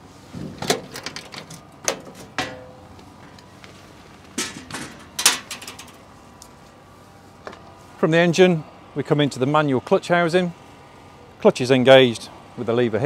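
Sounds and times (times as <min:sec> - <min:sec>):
steel panel swinging open: 0:00.4 - 0:02.9, 0:04.4 - 0:06.0.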